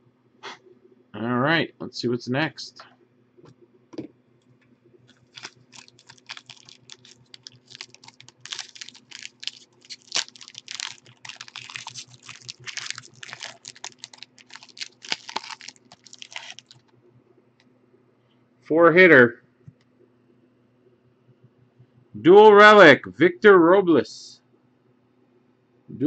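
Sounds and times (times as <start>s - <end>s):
foil wrapper crinkling and tearing: 5.1s - 16.8s.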